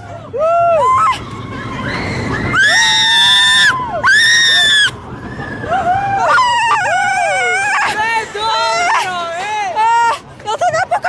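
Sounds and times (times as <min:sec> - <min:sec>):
low rumble of ride: 0:00.0 - 0:11.0
riders screaming: 0:00.4 - 0:09.1.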